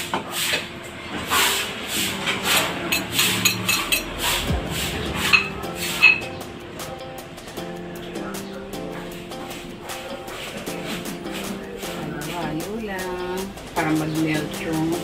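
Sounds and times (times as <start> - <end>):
spatula scraping a wok: 0.0 - 6.2.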